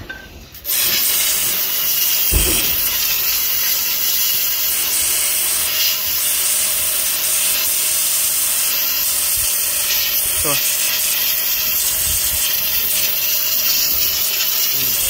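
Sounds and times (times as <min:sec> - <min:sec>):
pressure washer spraying: 0:00.6 - 0:15.0
low thump: 0:02.3 - 0:03.0.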